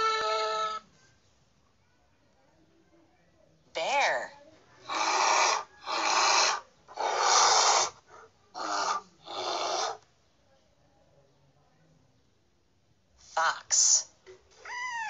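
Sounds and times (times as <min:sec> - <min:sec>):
bear growling: 0:04.8 - 0:10.0.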